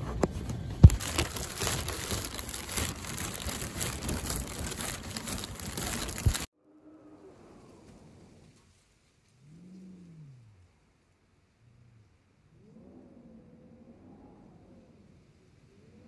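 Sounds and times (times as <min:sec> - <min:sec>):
plastic bags rustling: 0:00.3 - 0:06.5.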